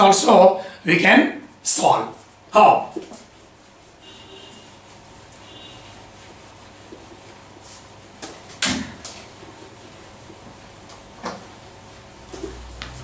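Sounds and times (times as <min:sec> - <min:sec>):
duster rubbing whiteboard: 0:02.2 - 0:08.5.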